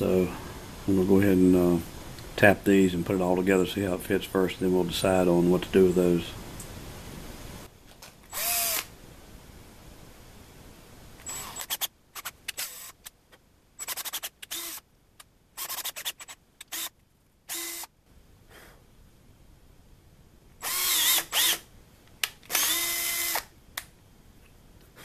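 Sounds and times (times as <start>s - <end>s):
cordless drill motor whirring: 8.3s - 8.9s, 11.2s - 13.0s, 13.8s - 14.8s, 15.6s - 17.9s, 20.6s - 21.6s, 22.5s - 23.5s.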